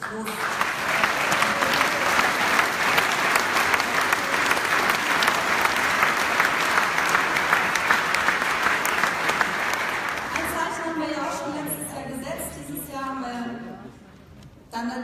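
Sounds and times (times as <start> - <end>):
audience applause: 0.0 - 11.1.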